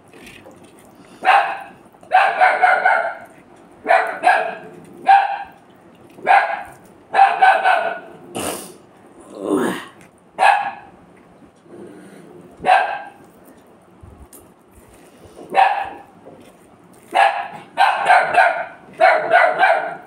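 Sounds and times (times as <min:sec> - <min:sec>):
dog barking: 0:01.2 - 0:05.6, 0:06.2 - 0:08.1, 0:10.4 - 0:10.9, 0:12.6 - 0:13.2, 0:15.5 - 0:16.1, 0:17.1 - 0:20.0.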